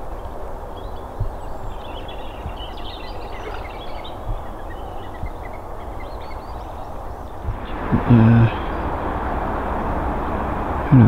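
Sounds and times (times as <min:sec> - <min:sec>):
faint low thumps: 0:00.0 - 0:11.0
small birds chirping: 0:00.0 - 0:11.0
steady low rumble: 0:00.0 - 0:11.0.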